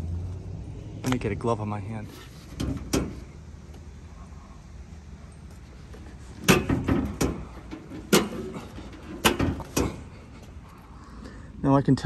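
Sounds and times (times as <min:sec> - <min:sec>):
sharp knocks and clunks: 0:02.5 - 0:03.8, 0:05.9 - 0:10.6.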